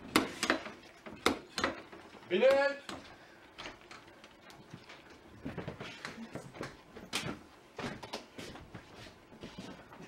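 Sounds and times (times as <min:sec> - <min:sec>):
footsteps: 0:04.6 - 0:10.0.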